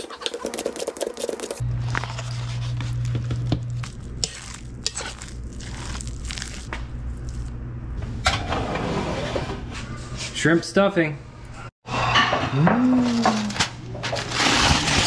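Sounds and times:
food scraping and wet squishing: 0.0s - 7.5s.

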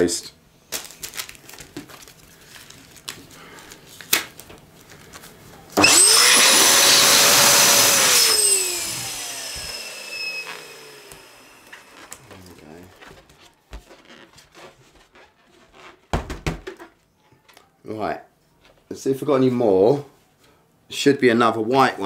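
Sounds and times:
electric balloon pump blowing air: 5.8s - 12.6s.

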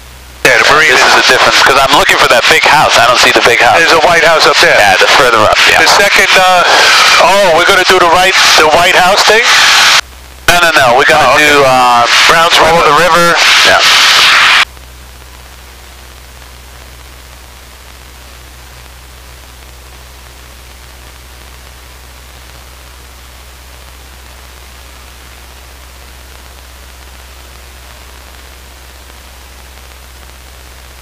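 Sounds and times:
steady hiss: 11.1s - 31.0s.

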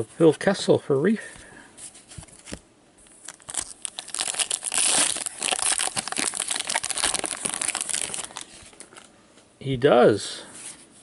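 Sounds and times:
wrapper tearing and crinkling: 2.4s - 9.1s.

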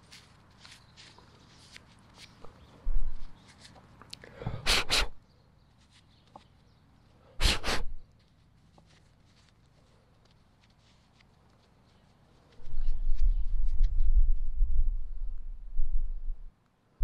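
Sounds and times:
person blowing puffs of air: 4.4s - 5.2s, 7.3s - 8.0s.

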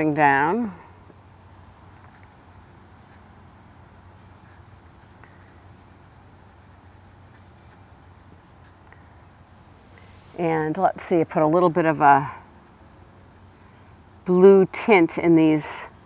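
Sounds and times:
high-pitched insect chirps: 0.0s - 9.5s.

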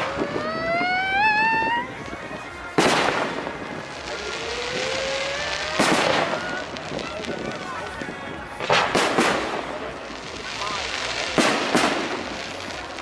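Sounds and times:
whistling firework rising: 0.0s - 2.2s, 2.8s - 7.2s.

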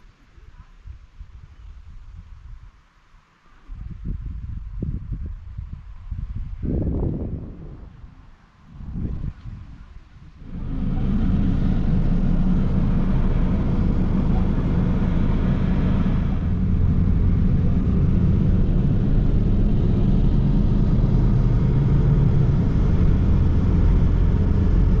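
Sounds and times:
vehicle engine rumbling: 8.8s - 25.0s.

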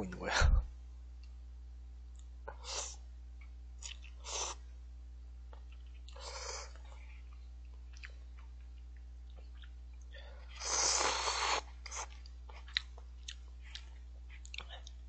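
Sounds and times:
person slurping noodles: 10.6s - 12.1s.

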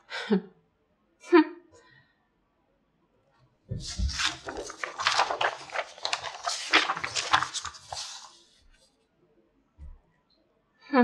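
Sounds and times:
plastic sheet crinkling: 3.8s - 8.6s.

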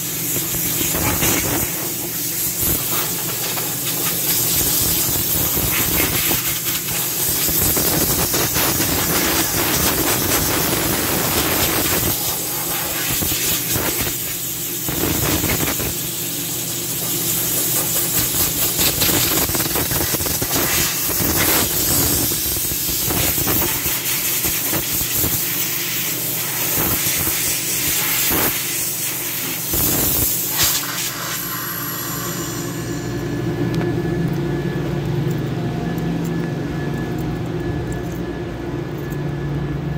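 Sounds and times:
compressed air blow gun hissing: 0.0s - 33.1s
low machine hum: 30.2s - 39.9s.

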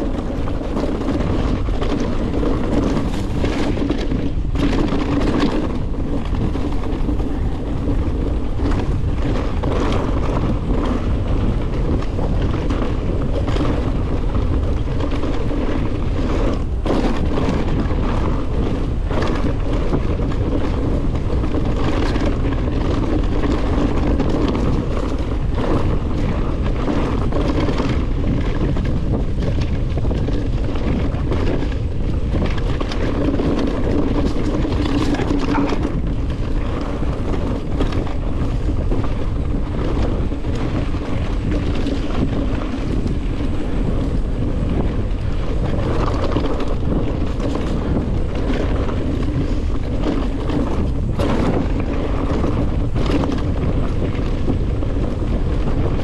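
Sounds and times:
bike knocking and rattling: 0.0s - 56.0s
wind rushing over microphone: 0.0s - 56.0s
tyres crunching on stones: 2.6s - 4.4s.

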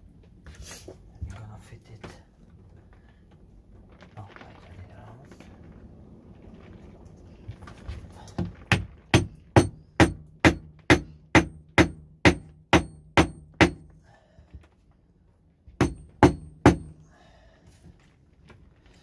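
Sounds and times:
wooden mallet knocking wood: 8.4s - 13.9s, 15.8s - 17.0s.

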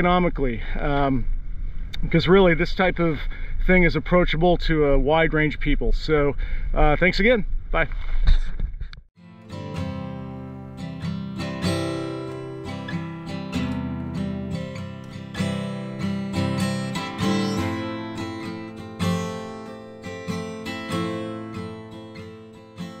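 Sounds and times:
acoustic guitar chords: 9.2s - 23.0s.

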